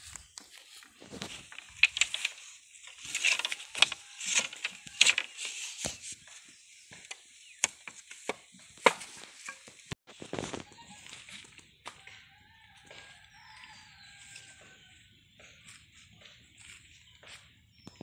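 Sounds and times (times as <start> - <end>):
bamboo scraping: 0.0 - 11.6
bamboo poles clacking: 0.1 - 12.3.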